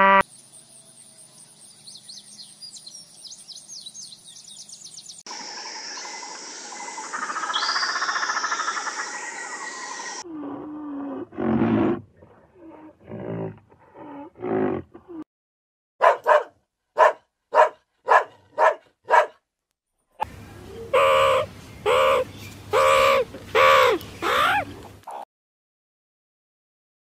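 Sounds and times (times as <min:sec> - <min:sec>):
low animal roar: 0:10.2 - 0:15.2
dog barking: 0:16.0 - 0:19.4.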